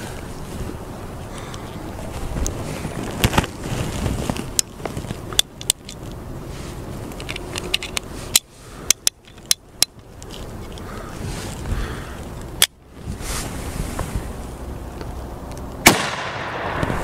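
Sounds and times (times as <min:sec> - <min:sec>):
rustling handling noise: 0:00.0 - 0:15.7
revolver metallic clicks: 0:07.1 - 0:10.9.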